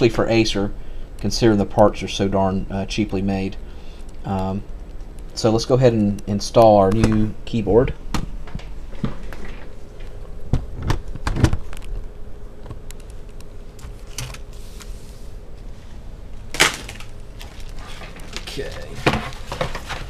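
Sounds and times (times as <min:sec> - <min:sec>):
plastic keyboard clicks and knocks: 0:10.5 - 0:12.0.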